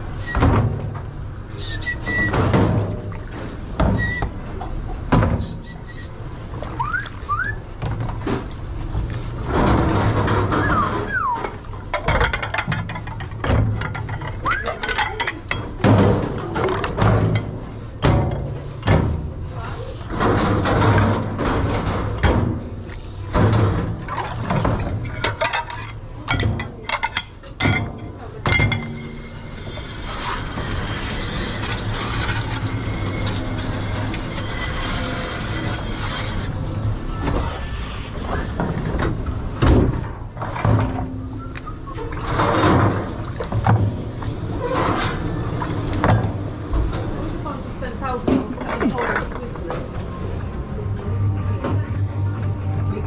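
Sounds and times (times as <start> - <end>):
dishes and utensils clattering: 9.4 - 47.2, 48.1 - 50.1
water spraying: 28.9 - 38.3.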